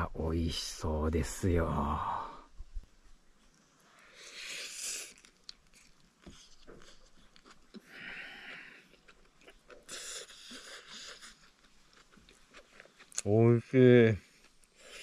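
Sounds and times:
person chewing: 0:03.5 - 0:13.5, 0:14.2 - 0:15.0.

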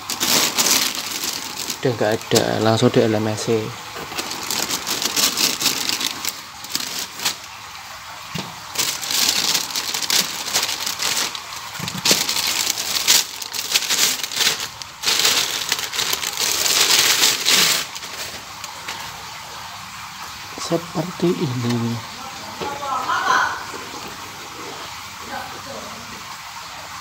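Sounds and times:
plastic bag crinkling: 0:00.0 - 0:19.6.

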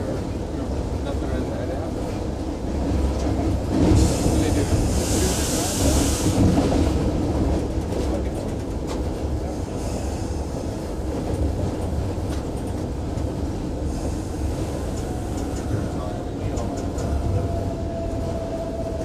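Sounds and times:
diesel locomotive cab rumble: 0:00.0 - 0:19.0
light track clicks: 0:07.6 - 0:09.5, 0:11.2 - 0:19.0.

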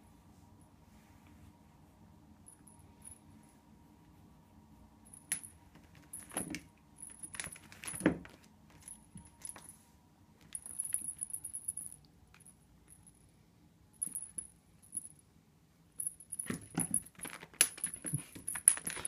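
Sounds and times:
small bell jingling: 0:10.5 - 0:12.0, 0:14.0 - 0:15.2.

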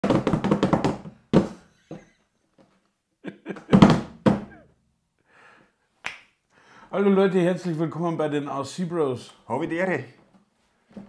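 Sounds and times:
sharp thuds and knocks: 0:03.7 - 0:04.6.

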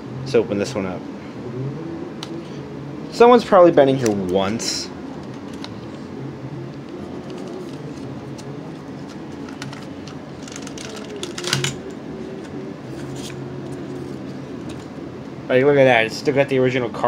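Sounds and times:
steady low hum: 0:00.0 - 0:17.0
rustling scrape: 0:12.8 - 0:14.9.

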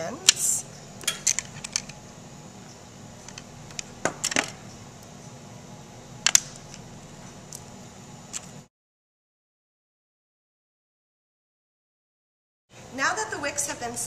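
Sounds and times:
steady low hum: 0:00.0 - 0:08.7.

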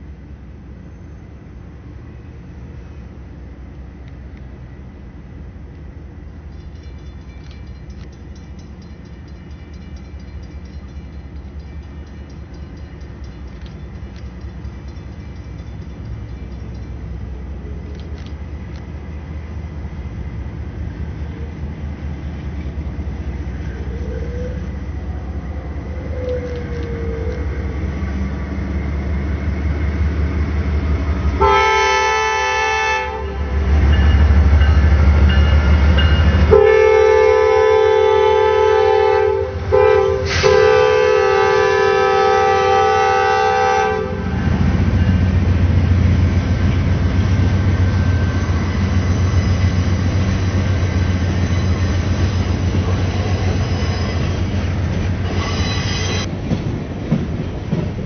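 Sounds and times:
diesel locomotive engine rumble: 0:00.0 - 0:58.0
locomotive air horn: 0:31.4 - 0:33.7, 0:36.5 - 0:44.5.

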